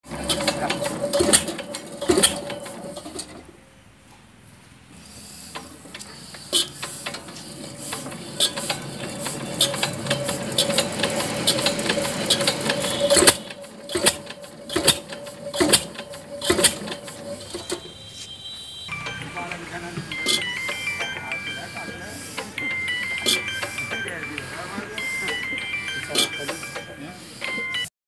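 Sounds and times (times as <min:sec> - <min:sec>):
diesel engine clattering: 0:00.0 - 0:03.5, 0:05.5 - 0:18.0, 0:18.9 - 0:27.8.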